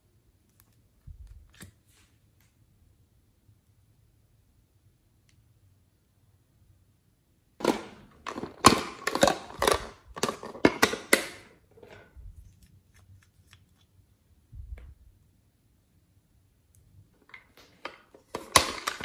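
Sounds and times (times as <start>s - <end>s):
plastic moulds clicking and crackling: 7.6s - 13.9s, 17.2s - 19.0s.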